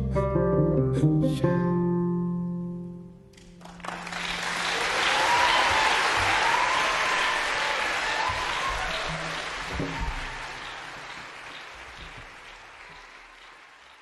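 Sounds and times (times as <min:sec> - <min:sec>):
audience applauding: 0:03.4 - 0:14.0.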